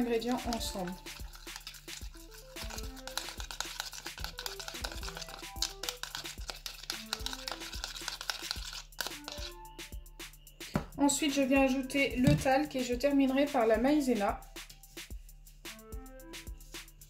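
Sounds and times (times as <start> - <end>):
background music: 0.0 - 17.0
plastic fork scraping thick mix: 0.1 - 9.5.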